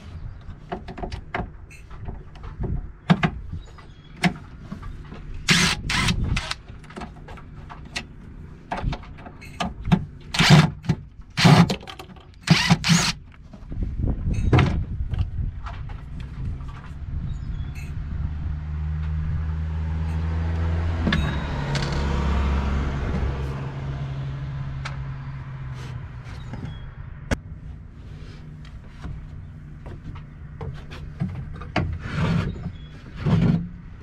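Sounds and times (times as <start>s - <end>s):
cordless impact driver bursts: 5.5s - 6.6s, 12.4s - 13.2s.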